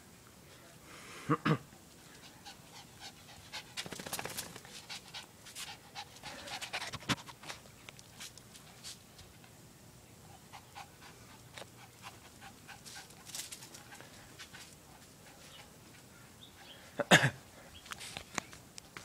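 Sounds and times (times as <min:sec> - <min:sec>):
puppy panting: 0:02.1 - 0:07.7, 0:10.4 - 0:16.8
faint scuffs and clicks: 0:07.1 - 0:09.6, 0:17.8 - 0:19.0.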